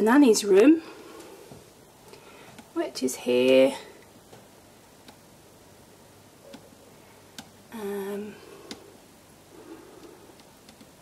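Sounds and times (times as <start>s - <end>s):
woman humming: 7.7s - 8.4s
faint clicks: 9.9s - 11.0s.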